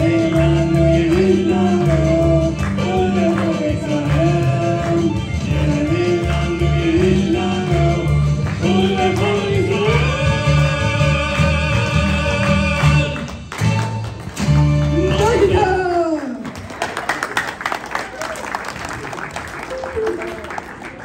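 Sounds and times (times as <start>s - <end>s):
young man singing into microphone: 0.0s - 13.2s.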